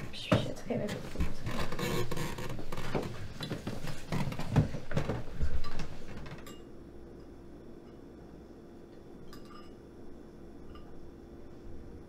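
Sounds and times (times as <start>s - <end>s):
spoons clinking on bowls: 9.2s - 9.8s, 10.7s - 11.0s.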